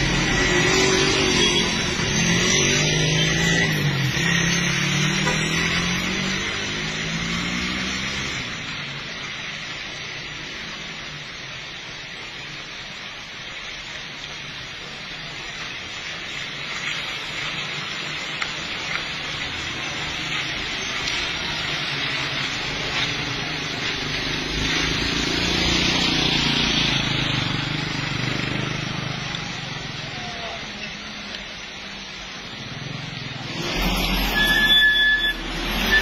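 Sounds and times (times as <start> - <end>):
tyres hissing on wet road: 0.0 - 36.0.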